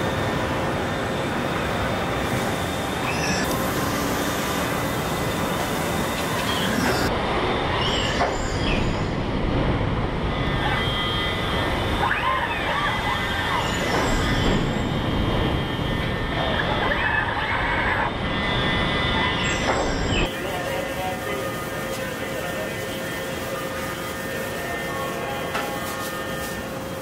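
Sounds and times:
high squealing whines: 0.0s - 9.4s, 10.1s - 20.3s
industrial robots and machinery din: 0.0s - 27.0s.

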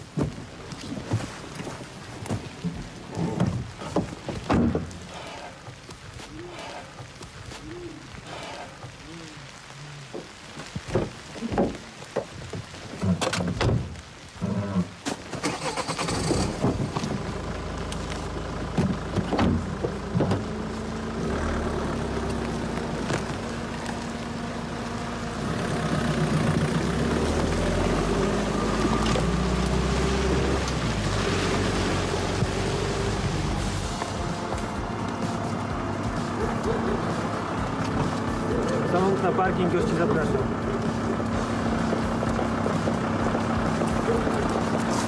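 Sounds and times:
car engine running: 15.5s - 45.0s.

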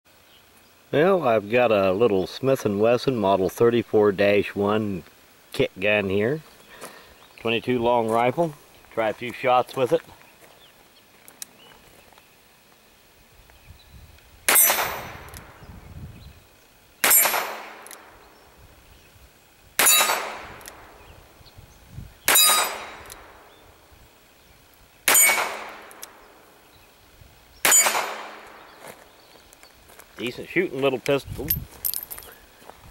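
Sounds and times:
steel target clanging: 17.0s - 17.8s, 22.3s - 23.0s, 25.1s - 25.8s.

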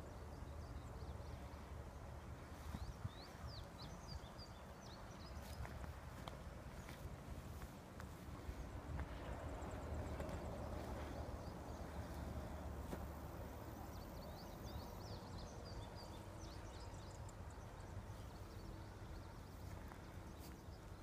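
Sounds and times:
wind rumble on microphone: 2.3s - 12.7s.

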